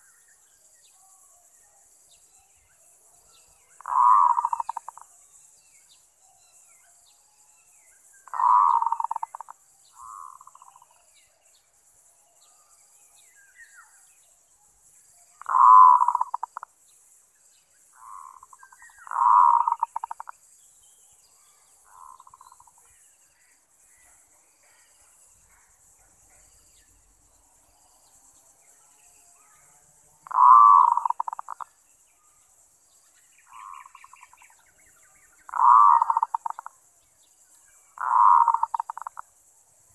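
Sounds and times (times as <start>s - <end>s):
dove cooing: 3.8s - 5.0s, 8.3s - 10.7s, 15.4s - 16.6s, 18.0s - 20.3s, 30.2s - 31.6s, 35.5s - 36.7s, 38.0s - 39.2s.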